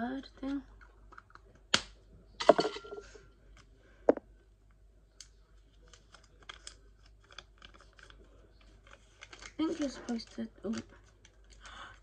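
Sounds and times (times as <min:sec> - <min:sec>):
paper crinkling: 0:05.6 - 0:11.9.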